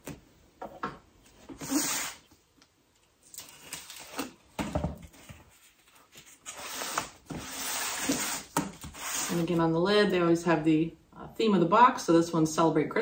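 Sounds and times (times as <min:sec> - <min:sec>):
cardboard scraping: 0:05.1 - 0:09.6
box cutter slitting tape: 0:06.5 - 0:09.4.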